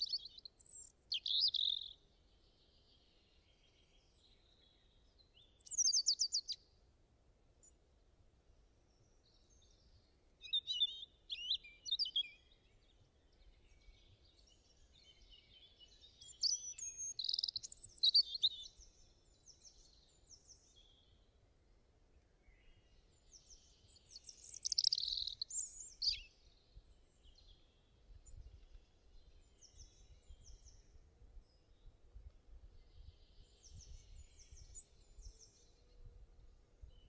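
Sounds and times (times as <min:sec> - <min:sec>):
birds chirping and singing: 0:00.0 - 0:02.0, 0:05.4 - 0:06.6, 0:10.5 - 0:21.1, 0:22.7 - 0:26.4.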